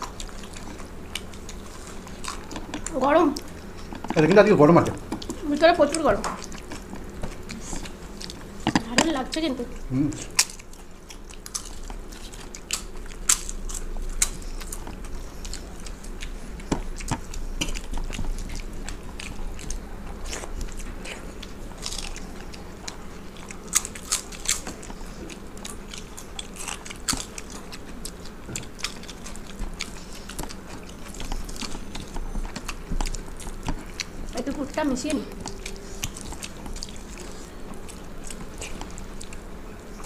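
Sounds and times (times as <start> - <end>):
chewing: 0.0 - 40.0
crunching bites: 10.2 - 34.2.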